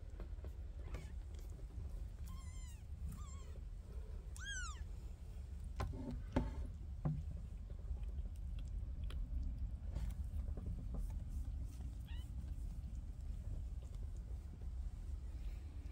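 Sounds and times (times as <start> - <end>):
low steady rumble: 0.0 - 15.9
kitten mewing: 2.2 - 3.6, 4.3 - 4.9.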